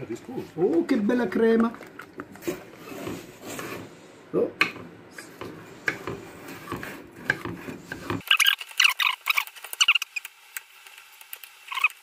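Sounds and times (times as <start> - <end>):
high squeaky chirps: 8.2 - 10.3, 11.7 - 12.0.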